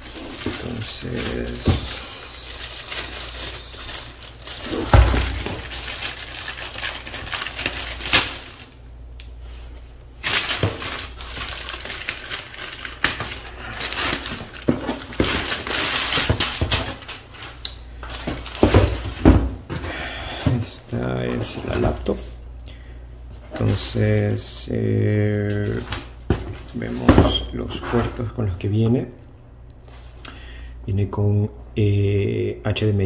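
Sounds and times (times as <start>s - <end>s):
plastic bag crinkling: 0.0s - 8.8s, 9.5s - 19.2s.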